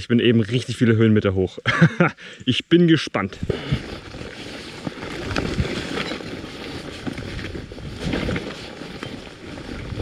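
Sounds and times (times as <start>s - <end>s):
bicycle rattling over rough trail: 3.4s - 10.0s
wind on microphone: 9.4s - 10.0s.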